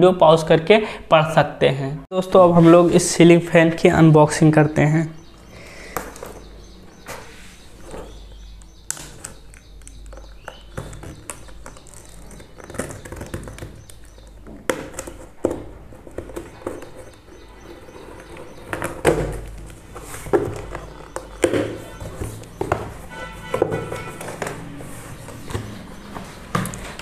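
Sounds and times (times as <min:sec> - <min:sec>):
hands handling cardboard box: 0:09.2 - 0:27.0
sharp knocks: 0:20.3 - 0:24.7.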